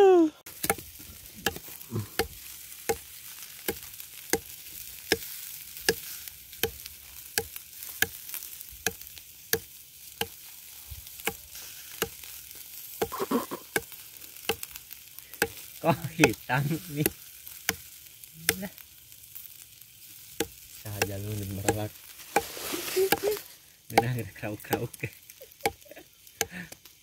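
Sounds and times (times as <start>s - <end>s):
meat sizzling on a grill: 0.5s - 27.0s.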